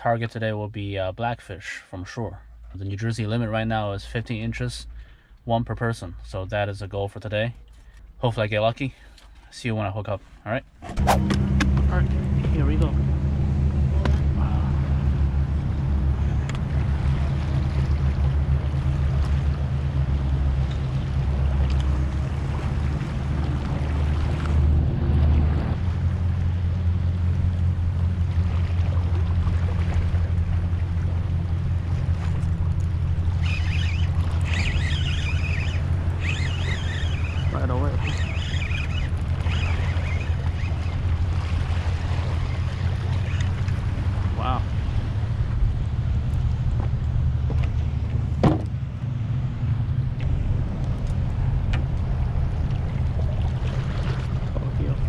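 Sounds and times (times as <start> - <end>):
wind rumble on microphone: 10.9 - 55.0
faint high wavering calls: 33.2 - 41.2.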